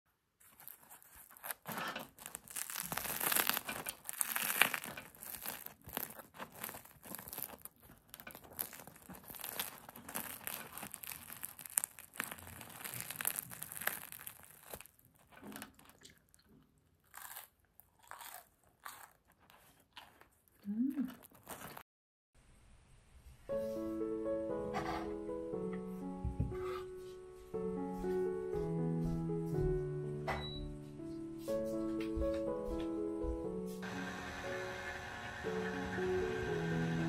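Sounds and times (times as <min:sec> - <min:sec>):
bread crust crackling when torn: 0:00.4 - 0:16.4, 0:17.0 - 0:21.8.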